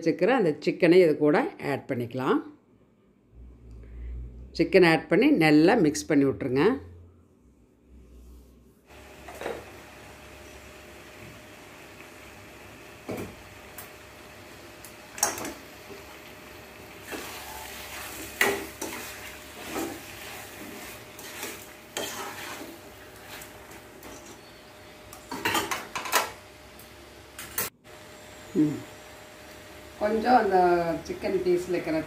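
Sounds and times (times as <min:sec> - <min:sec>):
steel ladle scraping a pot: 0:17.0 - 0:24.6.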